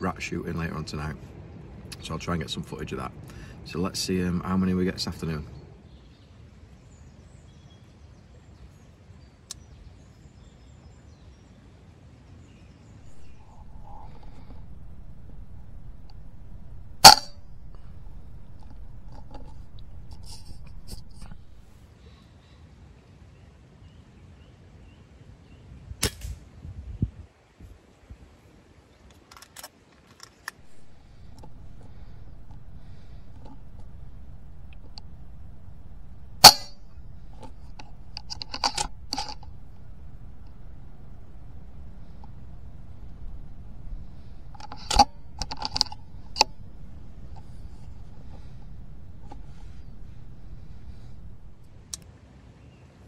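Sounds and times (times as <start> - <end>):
light clicks: 30.2 - 52.1
air rifle shot: 30.6 - 51.8.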